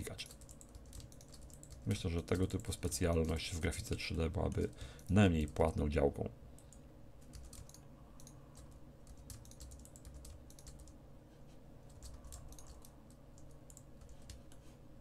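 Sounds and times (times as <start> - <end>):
low steady hum: 0.0 - 15.0
computer mouse clicks: 6.6 - 11.0, 11.9 - 14.7.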